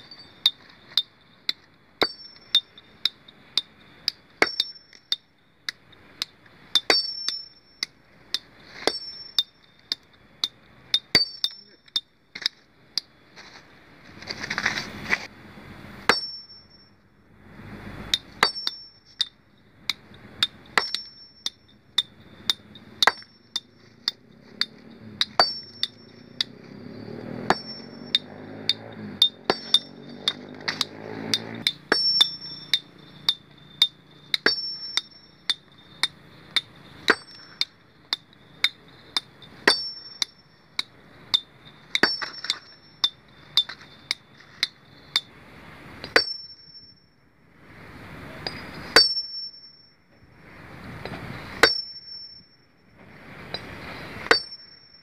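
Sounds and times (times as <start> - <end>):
hammer striking stone: 0.5 - 12.6, 16.1 - 16.7, 18.1 - 26.6, 27.3 - 45.3, 46.0 - 46.8, 48.4 - 49.6, 51.6 - 52.3, 53.5 - 54.9.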